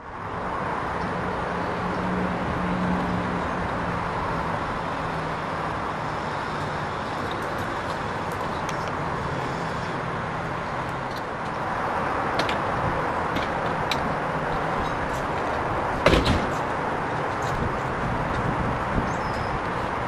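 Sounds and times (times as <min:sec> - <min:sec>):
outdoor background noise: 0:00.0 - 0:20.0
loud thump: 0:16.0 - 0:16.6.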